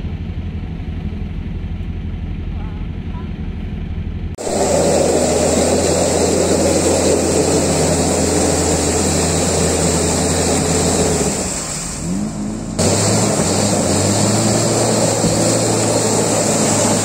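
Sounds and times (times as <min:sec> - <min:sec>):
engine revving under load: 0:04.3 - 0:17.0
tyres splashing through mud: 0:04.4 - 0:17.0.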